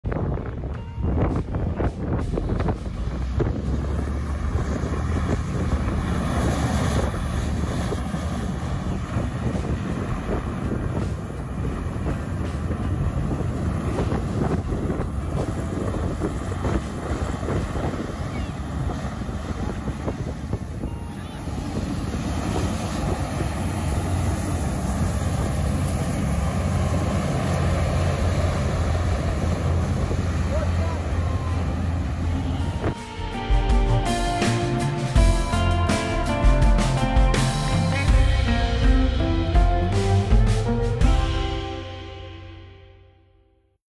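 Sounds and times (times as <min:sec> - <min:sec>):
wind buffeting microphone: 0:00.0 - 0:35.7
rushing air: 0:00.0 - 0:42.0
hovercraft low rumble: 0:00.0 - 0:43.3.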